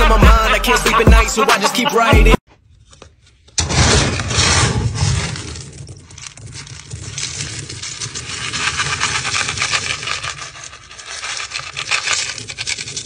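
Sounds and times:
cat kibble rattling in plastic bin: 5.3 - 13.0.

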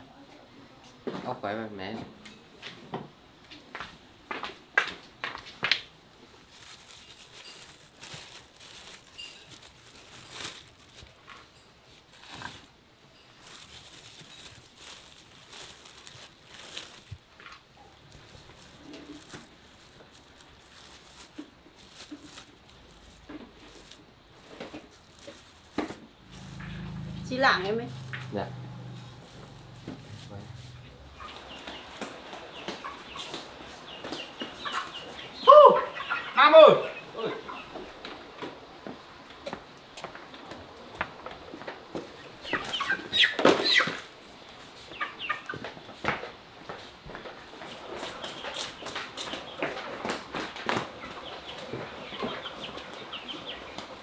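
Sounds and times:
plastic bags rustling: 6.2 - 33.6
low steady hum: 17.8 - 31.5
chickens squawking and clucking: 26.2 - 38.0, 42.2 - 44.2.

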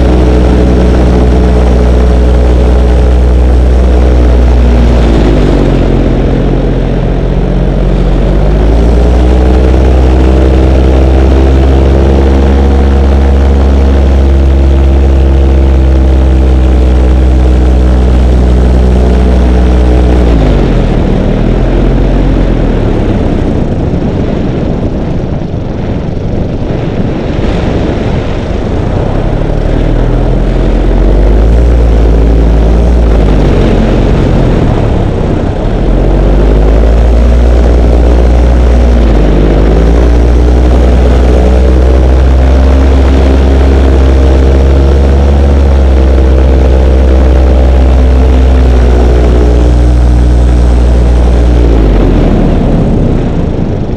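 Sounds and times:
model airplane motor and propeller: 0.0 - 53.9
wind rumble on microphone: 0.0 - 53.9.

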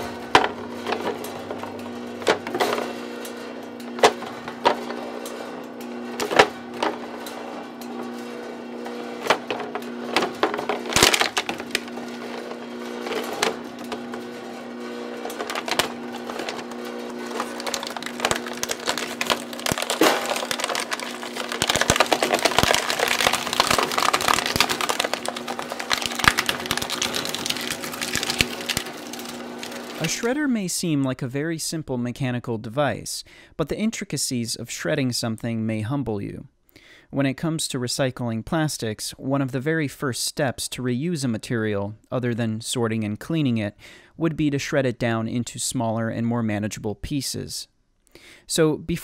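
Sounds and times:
plastic cracking and crunching: 0.0 - 30.4
steady motor hum: 0.0 - 30.4.

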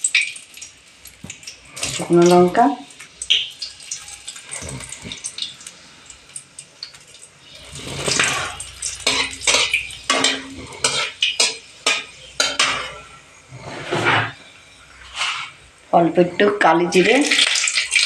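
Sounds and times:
oil sizzling: 0.0 - 18.0
metal spatula scraping a pan: 7.4 - 17.1.

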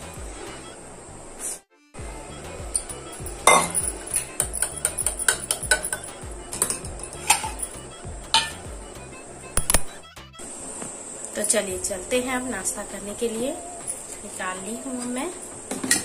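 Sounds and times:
light background music: 0.0 - 16.0
tea strainer knocking against a cup: 3.4 - 7.7, 8.4 - 8.6
sharp clicks: 9.6 - 10.0.

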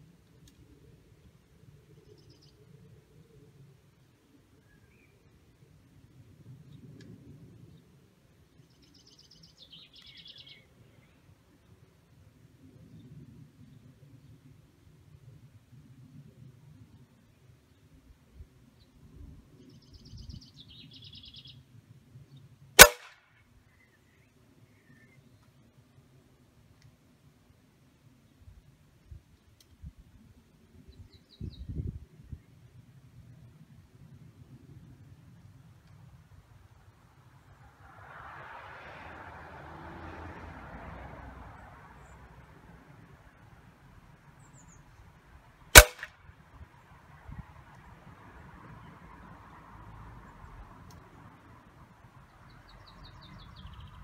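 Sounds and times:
air rifle shot: 22.8 - 23.2, 45.8 - 46.2.

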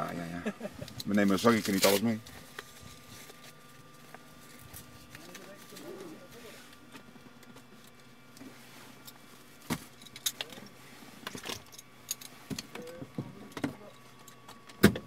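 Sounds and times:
gear and bags being handled: 1.0 - 13.0.

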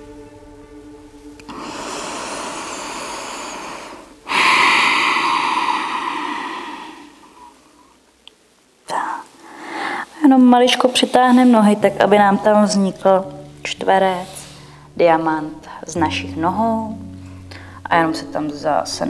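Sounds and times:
woman breathing deeply: 1.5 - 8.0, 9.4 - 10.2, 14.2 - 15.0, 17.2 - 17.9.

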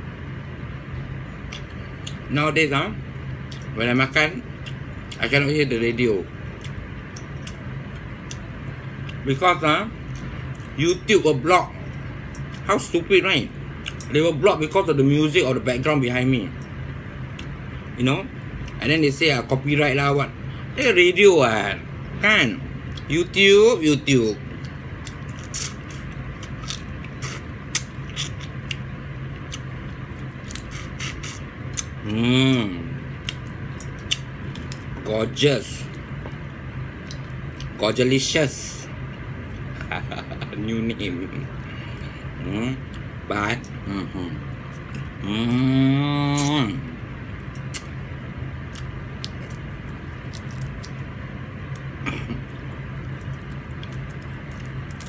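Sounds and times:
steady low hum: 0.0 - 55.0
chewing and lip smacking: 1.4 - 2.3, 3.5 - 3.8, 4.6 - 5.2, 6.6 - 9.2, 13.8 - 14.1, 24.5 - 32.1, 33.2 - 35.0, 37.0 - 37.8, 46.4 - 46.6, 47.4 - 48.0, 48.6 - 51.1, 51.7 - 55.0
mouth sounds of eating: 24.5 - 28.8, 30.4 - 35.0, 41.3 - 48.0
finger sucking: 25.1 - 28.8, 30.5 - 31.9, 46.3 - 46.6.

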